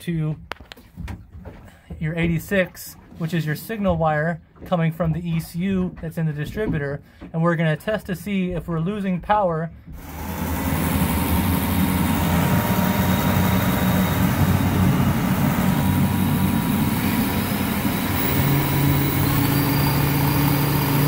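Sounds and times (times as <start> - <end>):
boat engine running: 9.8 - 21.0.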